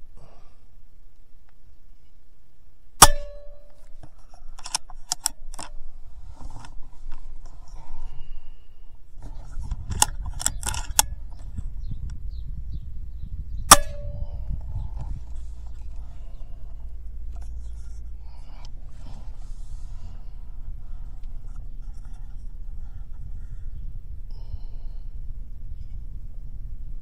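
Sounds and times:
air rifle shot crack: 3.0 - 3.7, 13.6 - 14.9
sharp metallic clicks: 3.0 - 5.8, 9.7 - 11.5, 13.7 - 16.1
low rumble: 5.7 - 27.0.

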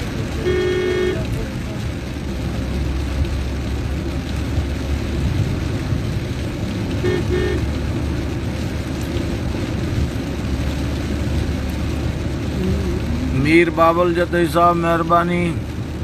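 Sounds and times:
car engine and tyre rumble: 0.0 - 16.0
car horn toots: 0.3 - 1.4, 7.0 - 7.8.

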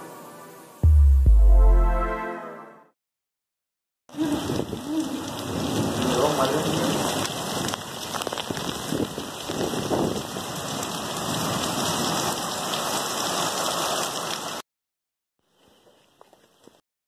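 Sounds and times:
heavy rain pouring: 4.1 - 14.6.

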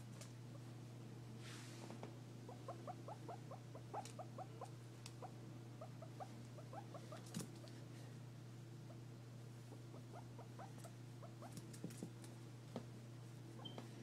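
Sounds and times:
guinea pig squeaking: 2.5 - 7.7, 9.7 - 11.7, 13.6 - 13.8.

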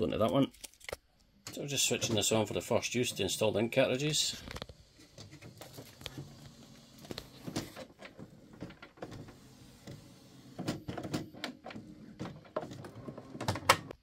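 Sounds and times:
printer carriage motor humming: 5.0 - 14.0.

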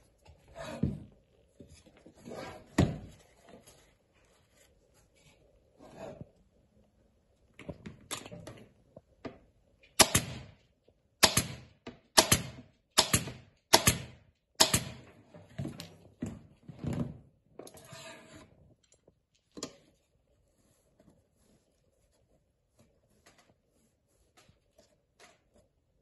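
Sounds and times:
pneumatic staple gun firing: 10.0 - 10.5.

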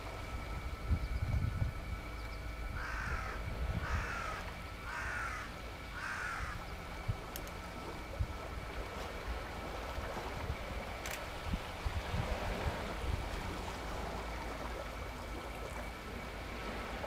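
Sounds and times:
crow cawing: 2.8 - 6.6.

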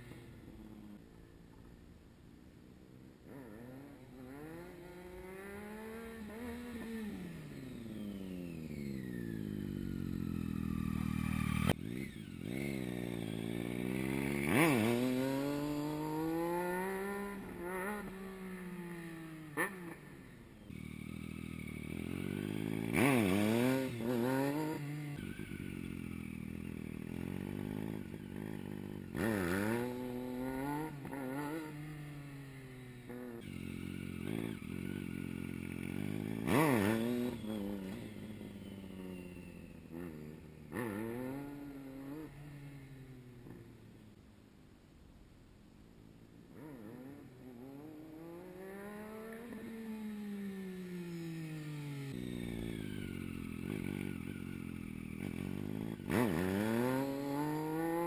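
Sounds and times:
motorcycle engine revving: 3.1 - 44.0, 46.4 - 58.0.

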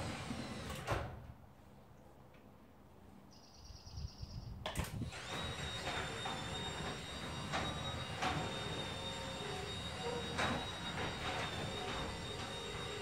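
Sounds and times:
garage door opener running: 0.0 - 1.2, 4.8 - 13.0
garage door opener click: 4.7 - 13.0
garage door opener clunk: 4.8 - 13.0.

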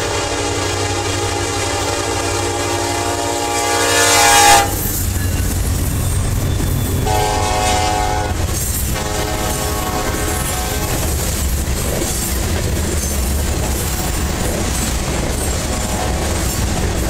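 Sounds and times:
locomotive air horn: 0.0 - 5.0, 6.7 - 11.3, 15.6 - 16.6
diesel engines and freight cars rumbling: 0.0 - 17.0.

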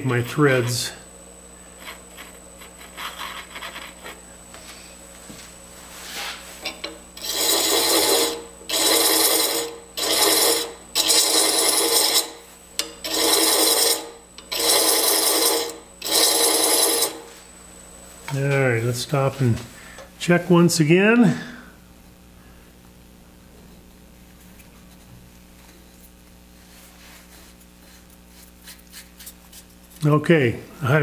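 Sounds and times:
lathe humming: 0.0 - 20.8
thread chaser scraping wood: 1.7 - 4.7, 6.0 - 12.4, 13.0 - 17.3.

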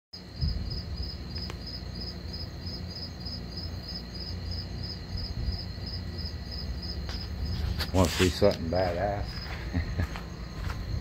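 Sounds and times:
insects chirping: 0.2 - 11.0.

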